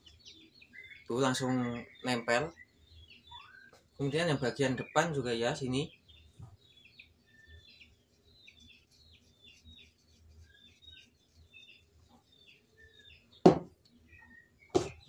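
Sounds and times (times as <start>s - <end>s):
small birds chirping: 0.0s - 15.0s
sharp knock: 13.5s - 13.7s, 14.8s - 15.0s.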